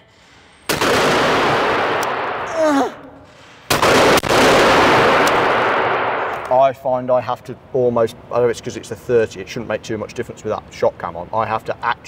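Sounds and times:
shotgun shots reverberating: 0.7s - 2.5s, 3.7s - 6.4s
person shouting: 2.5s - 3.2s.

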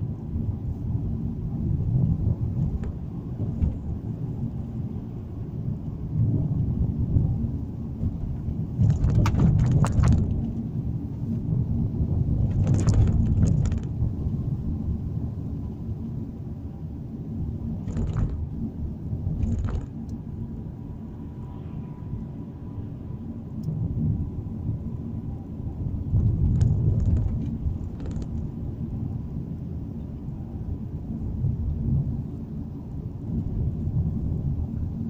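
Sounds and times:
car road and engine rumble: 0.0s - 35.0s
sharp clicking rattles: 8.8s - 10.6s, 12.5s - 14.0s, 17.8s - 18.5s, 19.4s - 20.2s, 26.2s - 28.5s.

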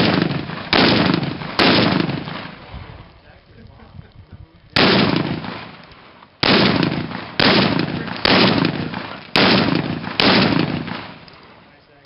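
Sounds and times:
rifle shots: 0.0s - 2.7s, 4.8s - 11.6s
rolling echo of gunshots: 0.0s - 2.7s, 4.8s - 11.3s.

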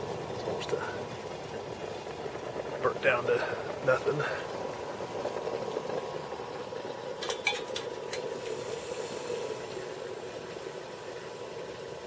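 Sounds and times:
water simmering rush: 0.0s - 12.0s
steel pot clinking on metal stove: 7.2s - 8.4s.

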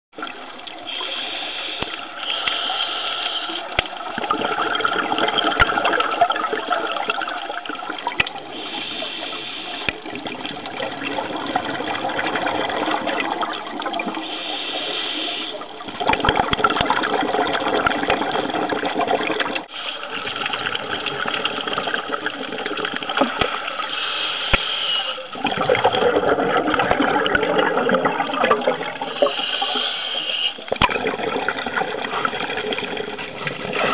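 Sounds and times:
underwater water rushing and bubbles: 0.2s - 33.9s
bright hiss: 0.9s - 3.7s, 23.7s - 25.4s, 29.1s - 30.6s.

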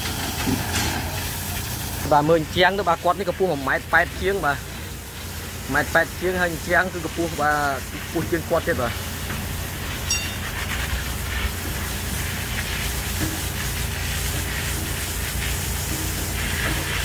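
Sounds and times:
construction machinery hum: 0.0s - 17.0s
even hiss: 0.0s - 17.0s
short metallic ring: 10.0s - 10.5s.

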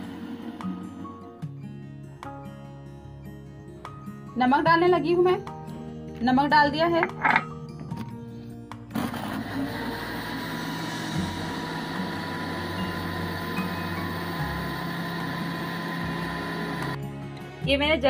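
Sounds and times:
blender motor running: 0.0s - 1.2s, 8.9s - 17.0s.

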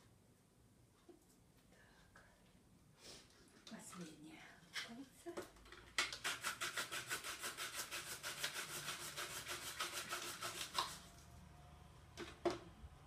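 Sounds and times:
onion scraping on vegetable slicer: 6.1s - 11.1s.

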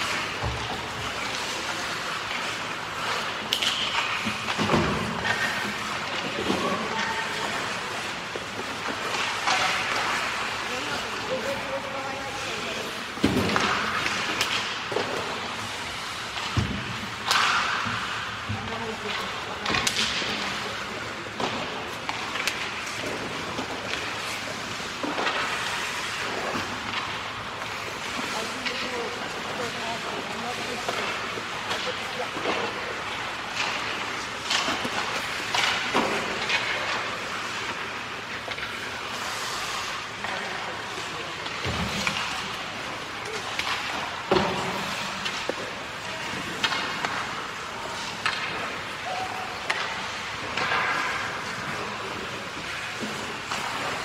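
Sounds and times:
arena noise: 0.0s - 54.0s
hockey sticks clacking: 0.0s - 54.0s
skate blades scraping ice: 0.0s - 54.0s
skates hissing on ice: 32.6s - 54.0s.

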